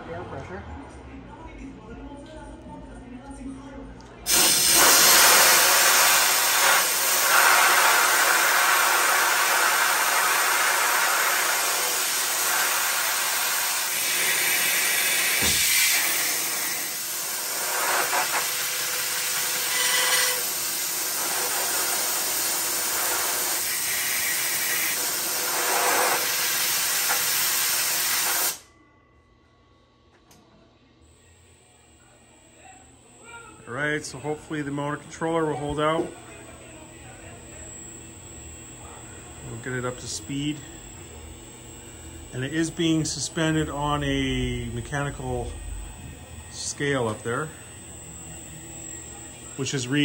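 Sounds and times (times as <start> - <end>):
compressed air hissing: 4.3 - 28.6.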